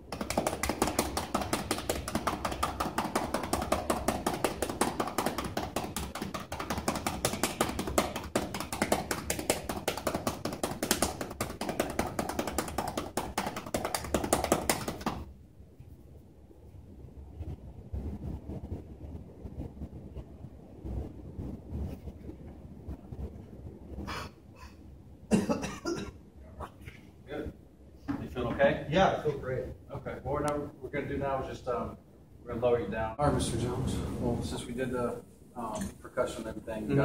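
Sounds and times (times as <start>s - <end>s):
cupped hands clapping on back: 0.0s - 15.3s.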